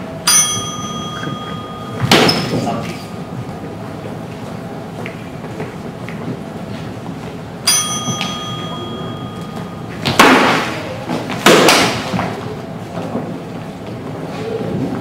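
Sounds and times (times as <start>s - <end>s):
bell ringing: 0.2s - 3.7s, 7.6s - 10.1s
swords striking: 0.3s - 3.2s.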